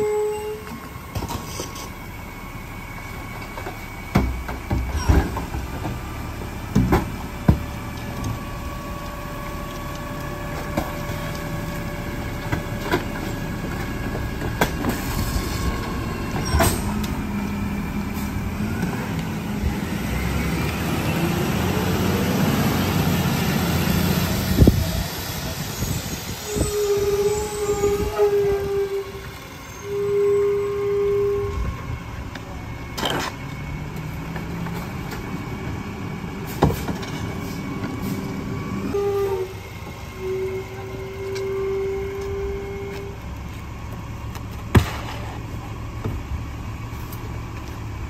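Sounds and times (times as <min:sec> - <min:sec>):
truck engine revving: 0:05.4 - 0:36.6.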